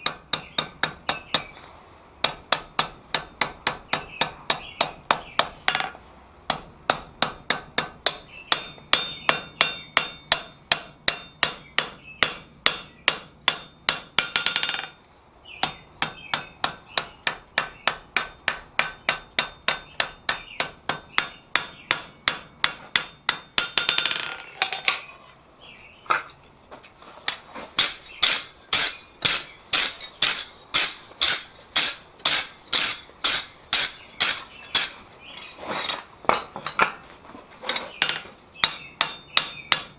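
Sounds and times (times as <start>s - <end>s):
hammer ringing on anvil: 6.5s - 14.9s.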